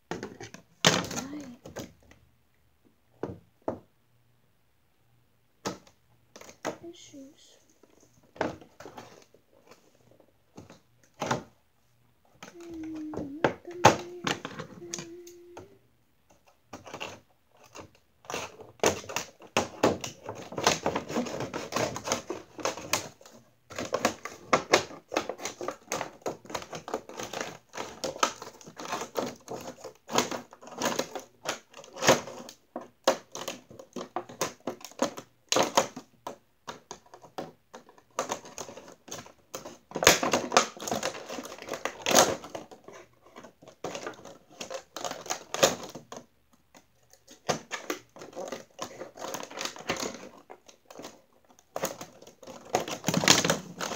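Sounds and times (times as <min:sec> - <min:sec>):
packaging crinkling: 0:16.8 - 0:53.9.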